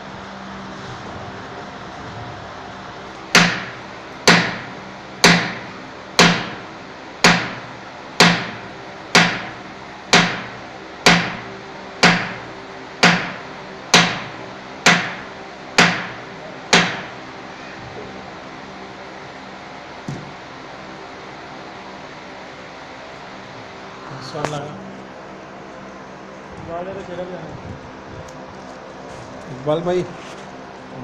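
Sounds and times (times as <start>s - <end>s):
hammer striking metal: 3.3s - 6.6s, 7.2s - 17.2s.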